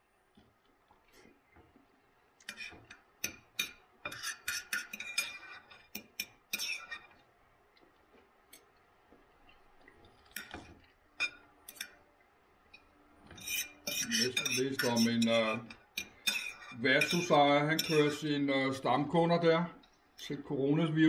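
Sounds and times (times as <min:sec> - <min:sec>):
knife and fork clinking on plate: 0:02.4 - 0:07.1, 0:13.4 - 0:18.2.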